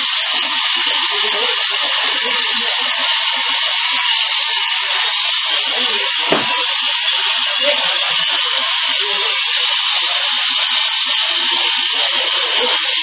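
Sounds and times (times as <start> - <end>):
brief knock: 6.3 - 6.7.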